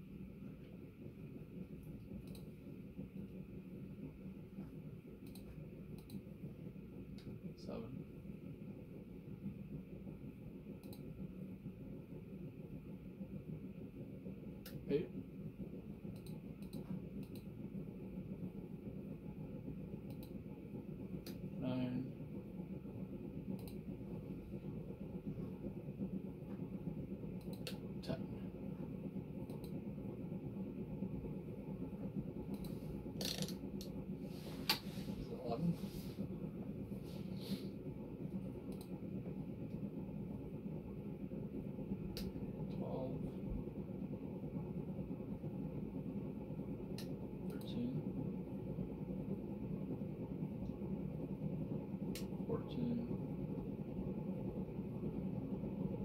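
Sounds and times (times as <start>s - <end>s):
ceiling fans whirring: 0.0s - 56.0s
sharp clicks: 5.2s - 6.2s, 16.1s - 17.5s, 20.0s - 20.4s, 23.6s - 23.8s, 27.4s - 27.8s, 29.4s - 29.8s, 38.7s - 38.9s.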